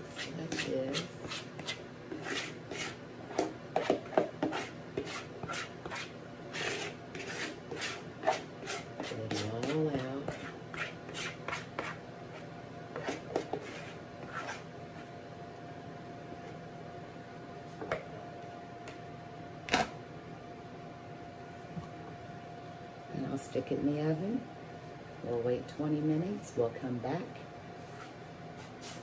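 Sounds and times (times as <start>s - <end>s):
spoon scraping batter from bowl: 0.0s - 15.1s.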